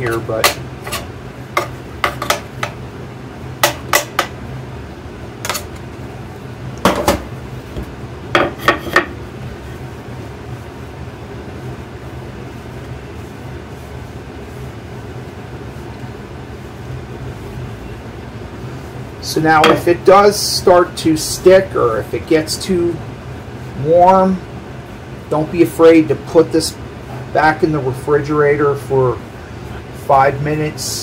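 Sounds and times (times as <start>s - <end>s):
steady low hum: 0.0s - 31.0s.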